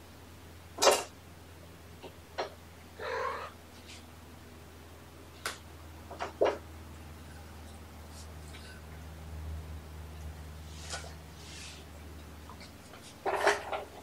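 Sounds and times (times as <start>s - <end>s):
cat meowing: 3.0s - 3.6s.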